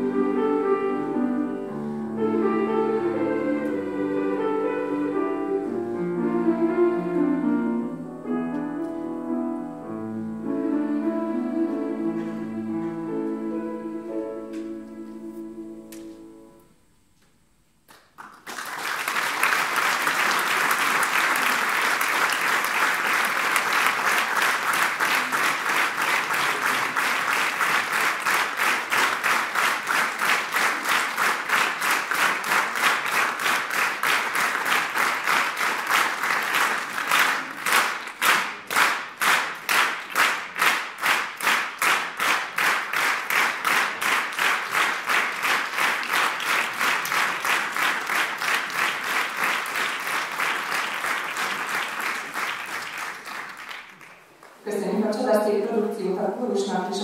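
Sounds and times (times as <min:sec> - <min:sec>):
rhythmic clapping in unison: 0:17.8 - 0:54.6
audience applauding: 0:17.9 - 0:54.6.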